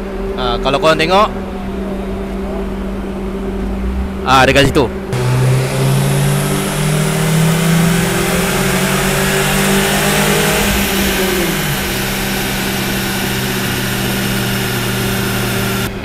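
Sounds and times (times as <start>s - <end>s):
turbocharged car engine running: 0.0s - 16.0s.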